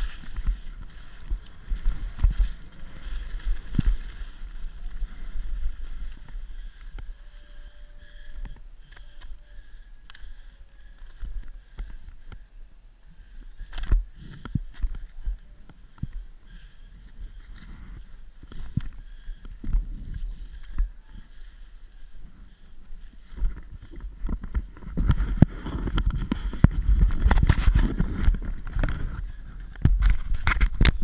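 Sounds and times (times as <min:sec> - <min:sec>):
skis scraping over snow: 0:00.0 - 0:08.3
wind rumbling on microphone: 0:00.0 - 0:12.5, 0:13.1 - 0:31.0.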